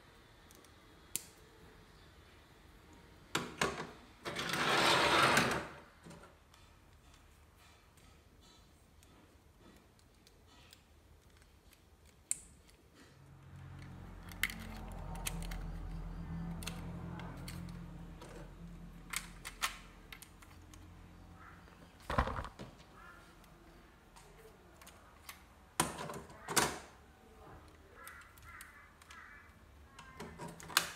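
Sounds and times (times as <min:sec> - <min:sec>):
plastic parts clicking: 0:08.4 - 0:21.0, 0:22.0 - 0:22.6, 0:24.2 - 0:26.8, 0:27.6 - 0:30.9
plastic parts clattering: 0:22.0 - 0:22.6.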